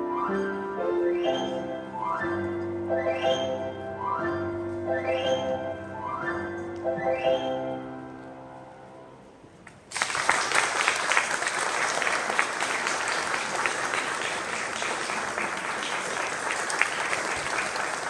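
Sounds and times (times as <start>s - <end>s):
audience clapping: 9.9s - 18.0s.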